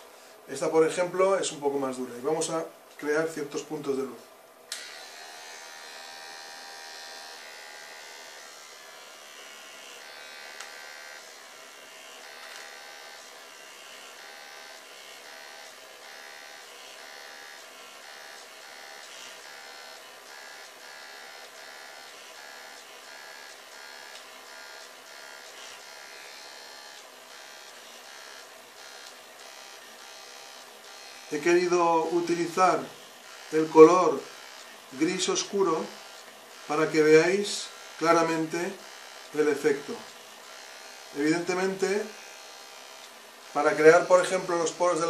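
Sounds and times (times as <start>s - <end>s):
electric eraser motor buzzing: 4.7s - 45.0s.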